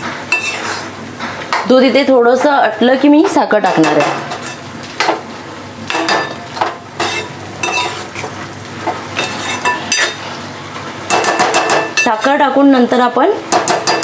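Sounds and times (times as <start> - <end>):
food sizzling: 0.0 - 14.0
spoon scraping metal pan: 0.3 - 0.9, 7.0 - 8.3, 9.2 - 10.2.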